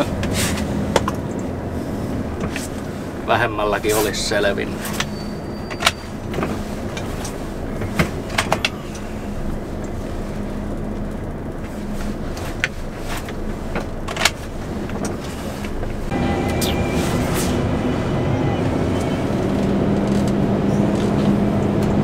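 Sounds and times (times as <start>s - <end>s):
diesel engine idling: 0.0s - 22.0s
truck engine and road noise: 0.0s - 22.0s
clicks and knocks in cab: 4.8s - 9.1s.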